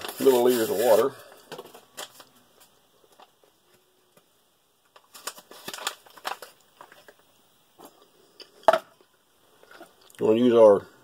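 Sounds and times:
food packaging crinkling: 0.0s - 3.4s, 4.8s - 8.0s.

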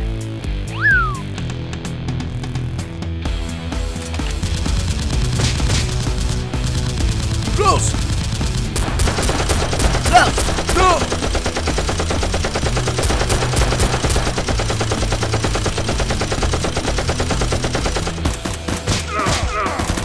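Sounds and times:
rapid automatic gunfire: 4.3s - 20.0s.

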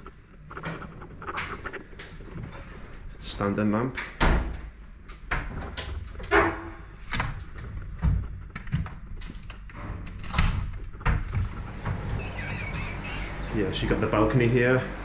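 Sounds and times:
sliding door rumbling on track: 9.7s - 15.0s.

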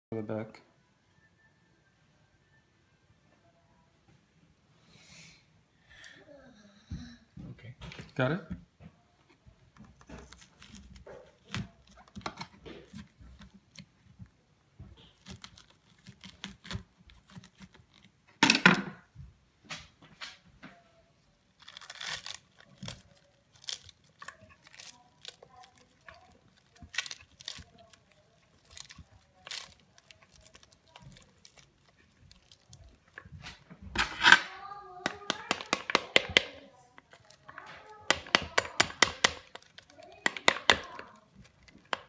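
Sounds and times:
rind cracking and tearing: 9.8s - 13.9s, 15.0s - 18.3s, 21.5s - 42.0s
knife cutting pomegranate: 15.0s - 18.1s.

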